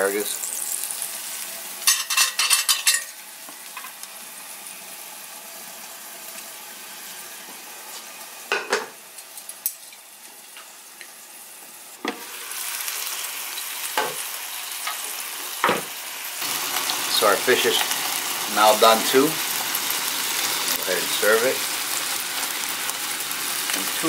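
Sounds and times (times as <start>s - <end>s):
fish sizzling in butter: 0.0s - 24.0s
plates and utensils clinking: 1.8s - 3.2s, 8.5s - 10.0s.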